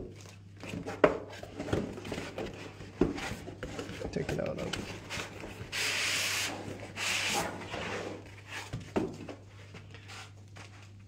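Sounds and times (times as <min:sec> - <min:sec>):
cardboard and foam scraping: 0:04.8 - 0:08.9.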